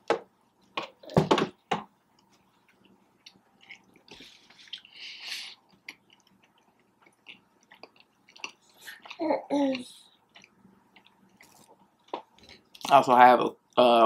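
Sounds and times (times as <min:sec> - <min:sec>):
chewing sandwich mouth sounds: 0:02.1 - 0:13.0.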